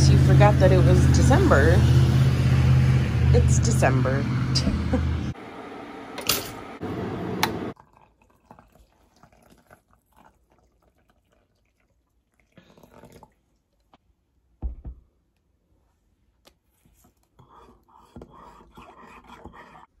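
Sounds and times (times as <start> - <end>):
water pouring into a ceramic mug: 7.8 - 13.4.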